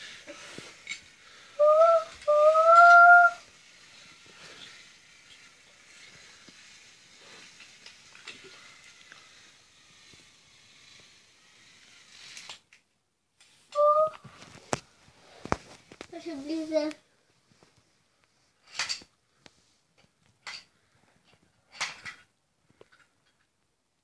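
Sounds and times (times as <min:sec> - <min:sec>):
wooden toy train rattling: 0:00.0 - 0:12.8, 0:18.6 - 0:19.1, 0:20.0 - 0:23.5
toy train whistle toots: 0:01.5 - 0:03.7, 0:13.7 - 0:14.2.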